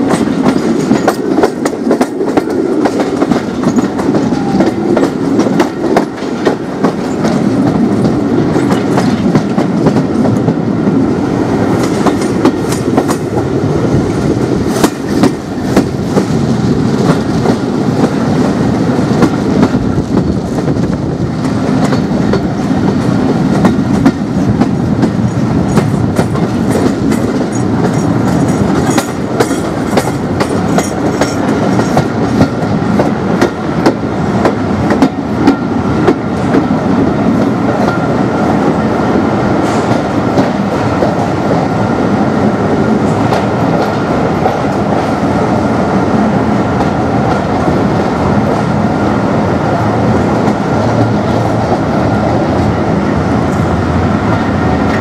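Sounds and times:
train rumbling on track: 0:00.0 - 0:55.0.

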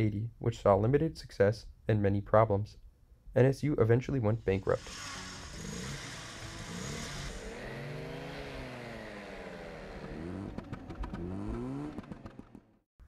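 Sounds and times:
car engine revving: 0:04.6 - 0:12.7.

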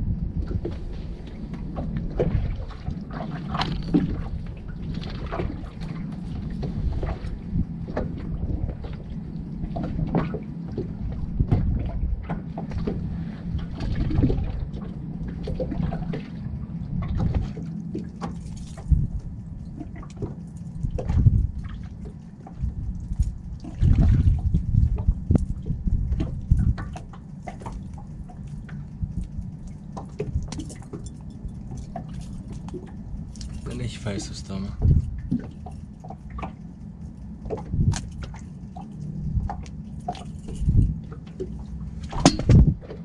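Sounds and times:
water sloshing and dripping: 0:00.3 - 0:43.0
knocks and splashes on kayak: 0:00.4 - 0:19.2, 0:19.8 - 0:28.0, 0:39.3 - 0:43.0.

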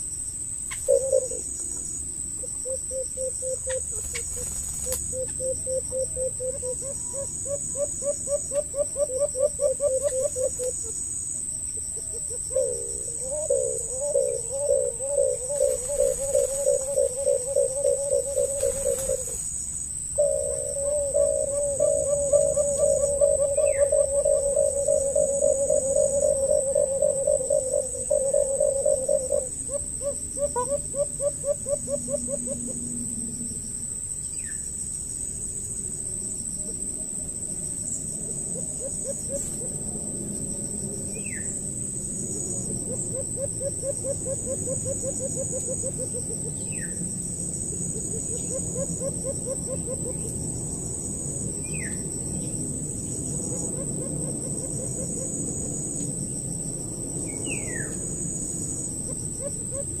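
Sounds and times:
high insect drone: 0:00.0 - 1:00.0
rapid low pulsing calls: 0:12.0 - 0:33.0.

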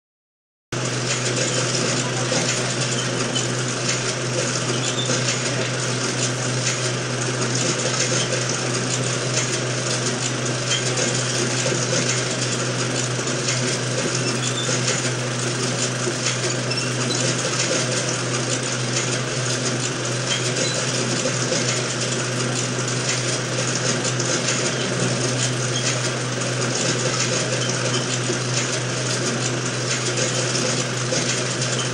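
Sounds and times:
film projector whirring and clattering: 0:00.8 - 0:31.9.

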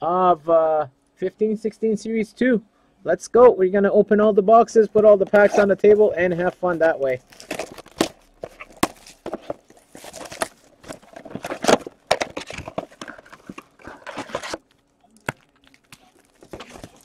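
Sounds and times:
cardboard and packs rustling: 0:04.9 - 0:17.0.

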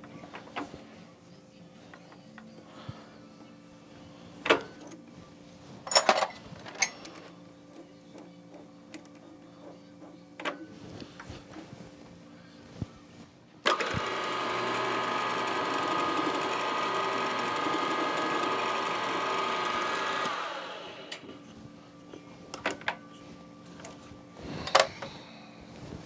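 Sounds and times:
milling machine spindle whine: 0:13.6 - 0:21.4.

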